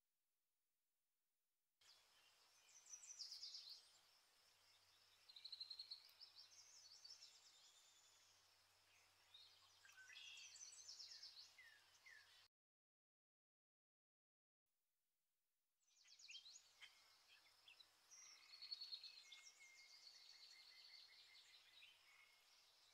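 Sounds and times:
songbird trills and chirps: 1.8s - 12.5s, 15.9s - 22.9s.

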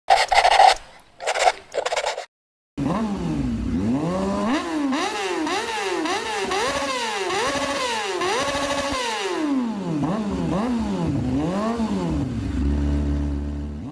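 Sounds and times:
motorcycle engine revving: 2.8s - 13.9s.

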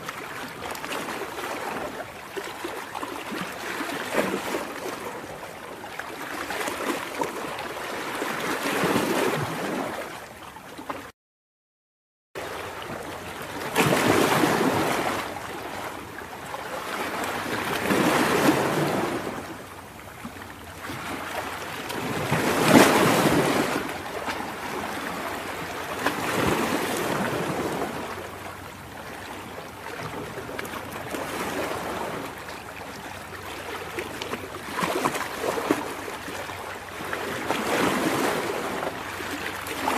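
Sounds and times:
ocean surf breaking: 13.6s - 16.0s, 16.7s - 19.6s, 20.9s - 28.4s.

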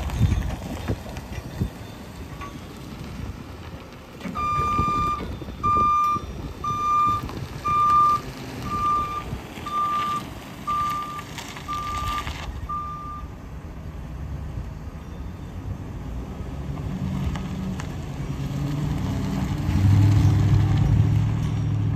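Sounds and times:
truck backup alarm beeping: 0.0s - 13.4s, 15.0s - 15.8s
truck engine running: 0.0s - 18.7s.

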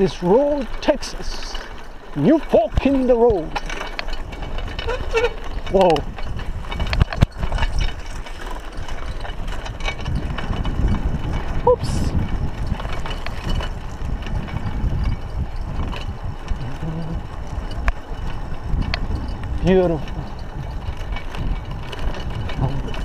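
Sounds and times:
bike chain and frame rattling: 0.0s - 23.0s
bike tyres rumbling on dirt: 0.0s - 23.0s.

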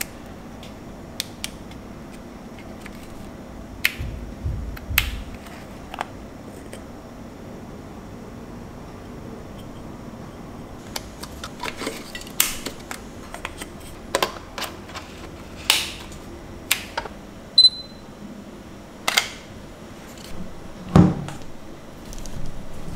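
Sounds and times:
short electronic beep: 17.6s - 18.0s.

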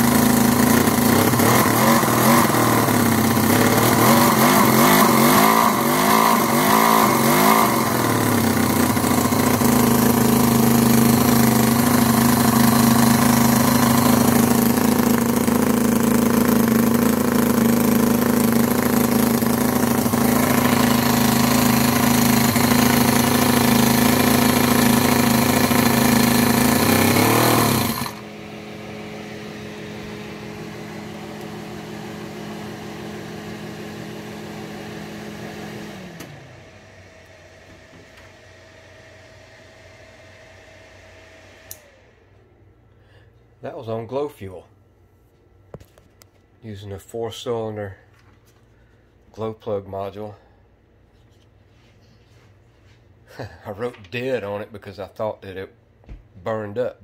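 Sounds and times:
miniature engine running: 0.0s - 28.2s.

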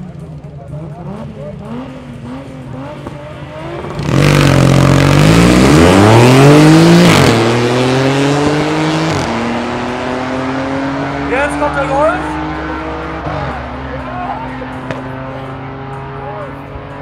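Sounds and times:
racing car engines revving: 0.0s - 17.0s.

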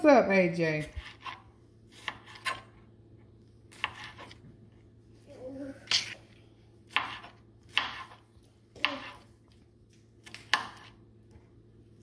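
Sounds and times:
knife slicing tomato onto mat: 3.7s - 4.4s, 6.9s - 8.2s.

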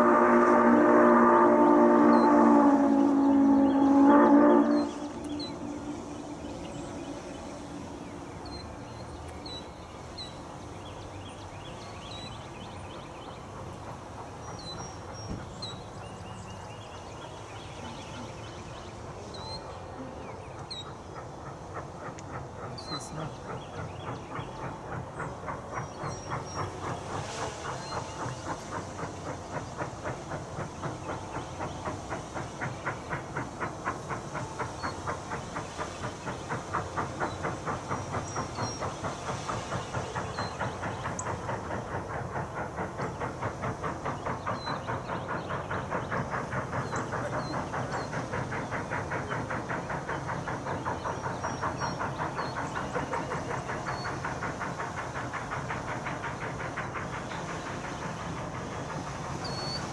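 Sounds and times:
steam hissing: 0.0s - 59.9s
steam locomotive chuffing: 0.0s - 59.9s.

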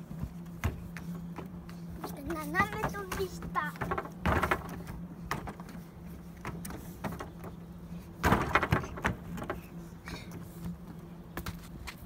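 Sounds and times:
children running on wooden walkway: 0.0s - 7.6s.

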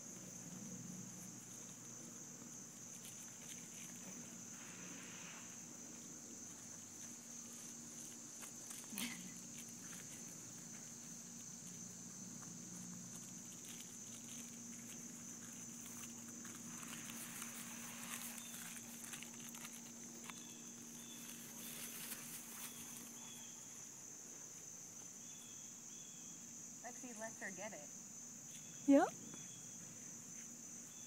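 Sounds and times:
dogs scuffling on grass: 0.5s - 23.9s.

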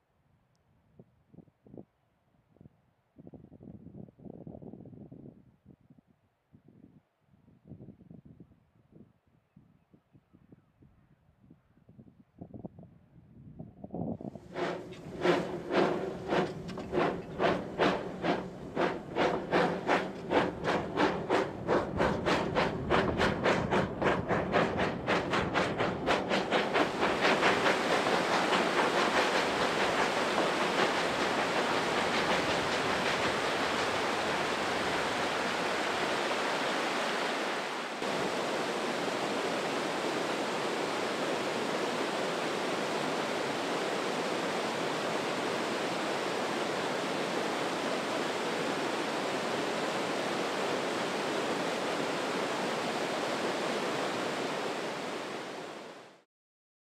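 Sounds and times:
river rushing over boulders: 26.9s - 56.1s.

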